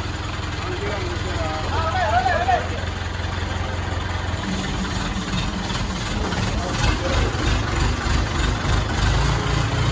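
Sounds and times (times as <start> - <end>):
crane engine rumbling: 0.0 - 9.9.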